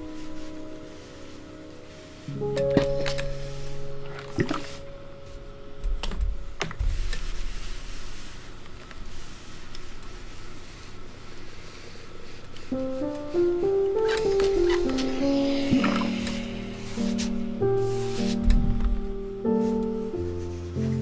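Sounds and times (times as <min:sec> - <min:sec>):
iron sliding over fabric: 0:14.0 - 0:18.4
low thumps: 0:18.4 - 0:19.2.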